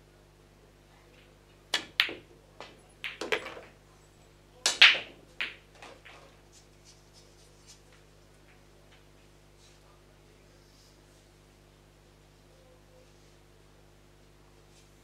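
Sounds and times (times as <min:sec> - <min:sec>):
cue striking ball: 0:01.7 - 0:03.7, 0:04.7 - 0:06.1
billiard balls clacking: 0:01.7 - 0:03.8, 0:04.6 - 0:06.4
ball rattling into pocket: 0:01.8 - 0:03.8.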